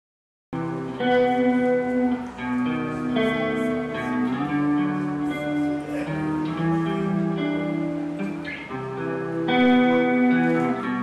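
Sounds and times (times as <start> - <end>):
plucked guitar chords: 0.6 - 11.0.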